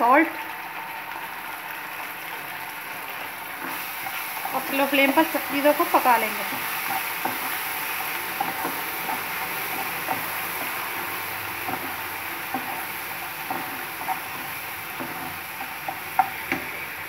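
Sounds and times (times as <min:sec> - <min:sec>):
vegetables sizzling in oil: 0:00.0 - 0:17.0
spatula knocking pan: 0:03.6 - 0:17.0
spatula scraping pan: 0:03.6 - 0:17.0.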